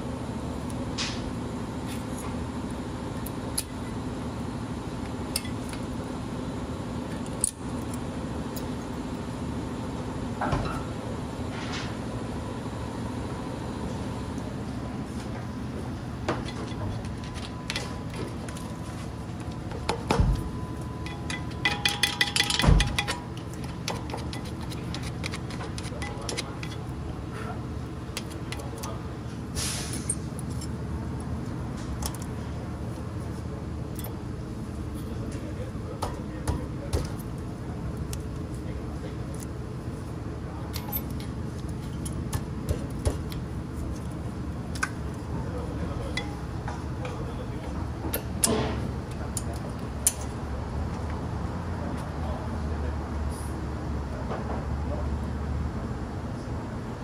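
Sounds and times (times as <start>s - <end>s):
steady low hum: 0.0s - 57.0s
low hum: 11.0s - 35.3s
metal tools clinking: 20.9s - 27.0s, 29.8s - 30.8s, 40.7s - 42.2s.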